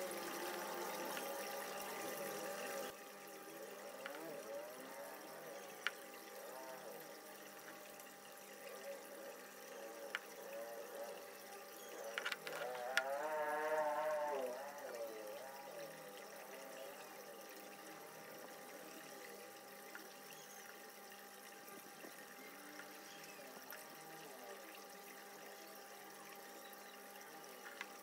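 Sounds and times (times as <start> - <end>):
faint steady hum: 0.0 - 28.0
soft ticks: 5.7 - 6.1, 12.0 - 13.2.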